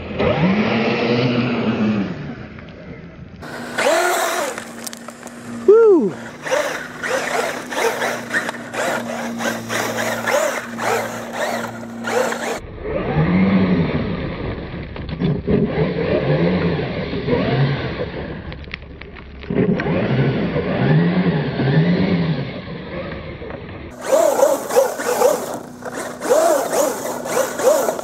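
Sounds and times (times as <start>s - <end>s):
electric motor whining: 3.4s - 12.6s, 23.9s - 28.0s
tyres scrabbling on dirt: 3.4s - 12.6s, 23.9s - 28.0s.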